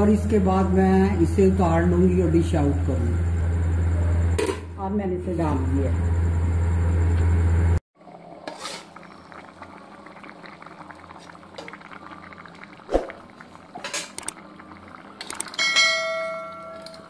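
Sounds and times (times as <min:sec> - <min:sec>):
curry bubbling in a pot: 0:08.0 - 0:15.7.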